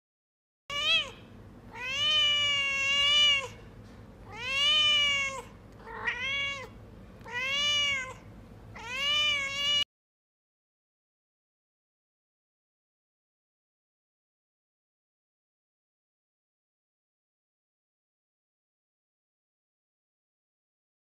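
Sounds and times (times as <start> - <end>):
cat meowing: 0.7 - 3.6, 4.2 - 9.9.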